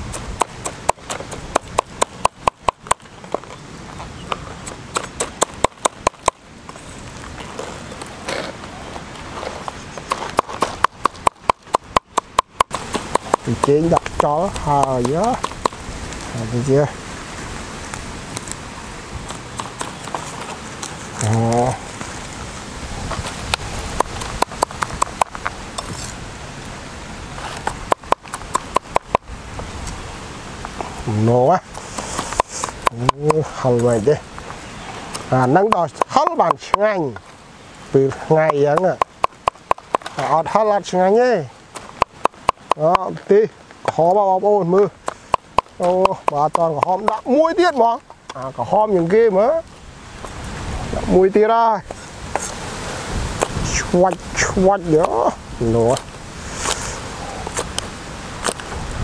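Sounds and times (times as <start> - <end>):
cleaver chopping on wooden board: 0.1 - 3.0, 4.6 - 6.4, 10.1 - 15.8, 24.0 - 25.9, 27.7 - 29.2, 32.0 - 33.4, 45.0 - 47.2.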